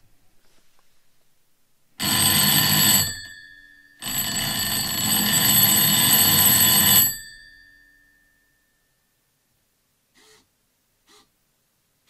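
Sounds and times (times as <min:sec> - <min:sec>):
alarm clock bells ringing: 0:02.0 - 0:08.7.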